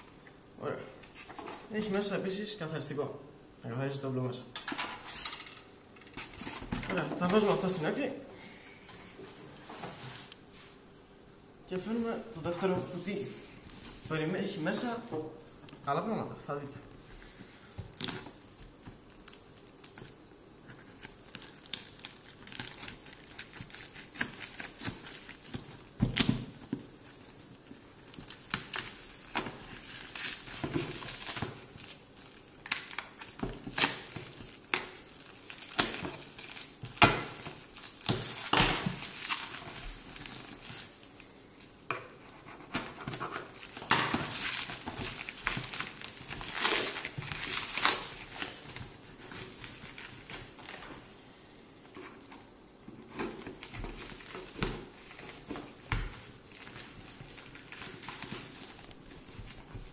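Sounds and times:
plastic wrapping crinkling: 17.7 - 51.0, 53.0 - 59.9
plastic ripping: 20.7 - 41.0, 42.7 - 50.8.

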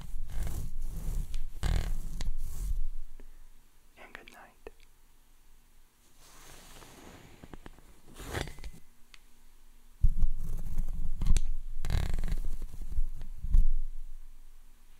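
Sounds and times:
scratchy swishes on microphone: 0.0 - 2.9, 6.1 - 8.8
low rumble of contact noise: 0.0 - 3.1, 6.0 - 8.8, 10.1 - 11.2.

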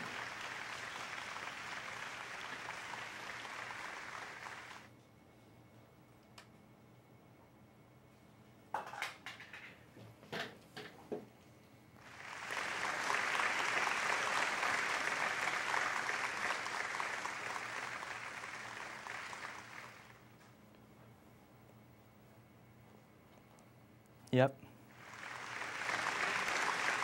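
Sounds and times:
people clapping: 0.0 - 4.9, 12.0 - 20.4, 24.9 - 27.0.

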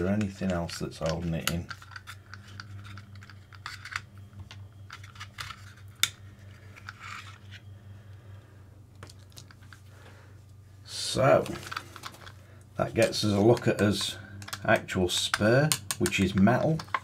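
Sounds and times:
plastic and metal parts rattling: 0.0 - 4.0, 4.9 - 7.5, 11.4 - 12.4, 13.0 - 17.0.

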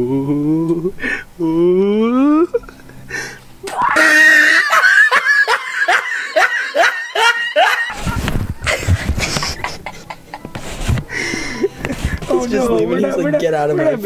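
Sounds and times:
person laughing hard: 3.7 - 10.5
rough noise: 7.9 - 12.9.

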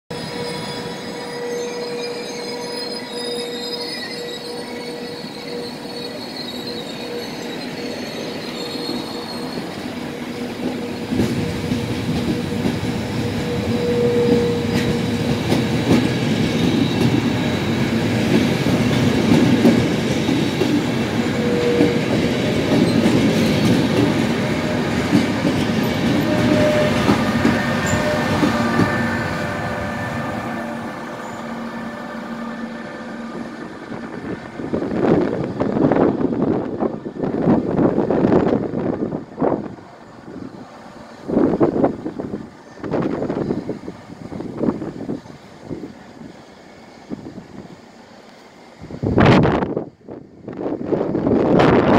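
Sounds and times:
wheel squealing tone: 0.1 - 15.5, 20.2 - 35.2
train wheels rumbling on rails: 0.1 - 51.9.

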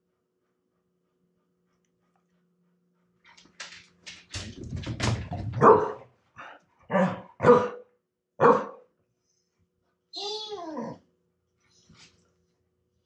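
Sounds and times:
dog barking: 5.6 - 6.0, 6.9 - 7.8, 8.4 - 8.9.

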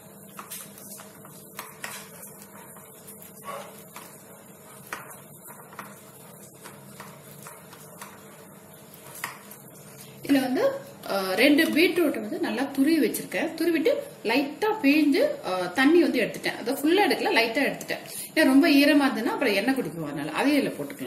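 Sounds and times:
potatoes being mashed by hand: 0.0 - 10.3.

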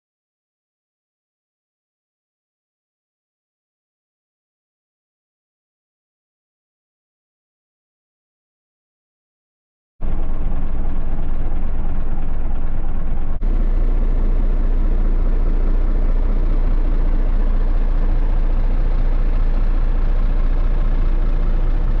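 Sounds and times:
diesel truck engine idling: 10.0 - 22.0.

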